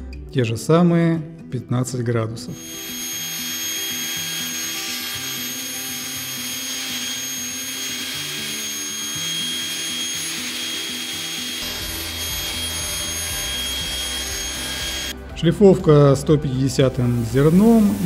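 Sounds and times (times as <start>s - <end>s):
background music: 0.0s - 18.0s
power tool running: 2.6s - 15.2s, 17.1s - 18.0s.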